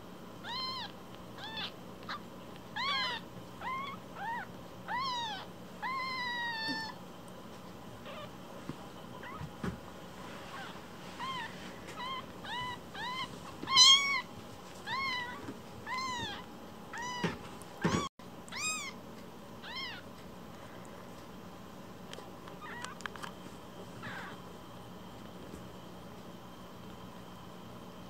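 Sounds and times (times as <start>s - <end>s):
kitten mewing: 0.4s - 7.0s, 8.0s - 8.3s, 10.5s - 19.0s, 24.0s - 24.4s.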